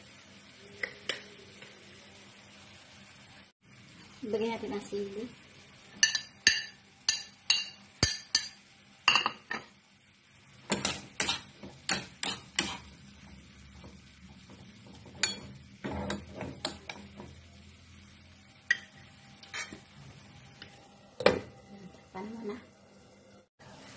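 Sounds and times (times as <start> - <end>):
spoon stirring and scraping pan: 10.5 - 17.5.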